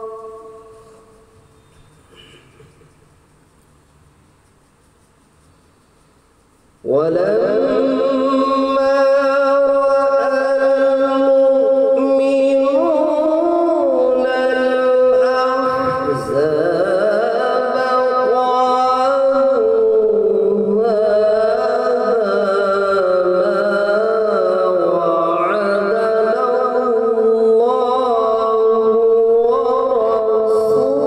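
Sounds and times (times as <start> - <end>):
man chanting into microphone: 0.0 - 1.2, 6.8 - 31.0.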